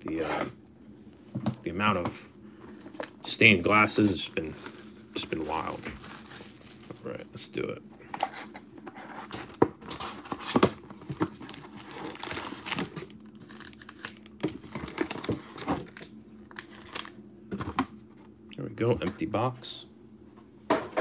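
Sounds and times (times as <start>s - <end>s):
plastic wrap crinkling and tearing: 2.8s - 7.2s, 9.8s - 17.2s
cardboard rustling: 8.2s - 16.0s.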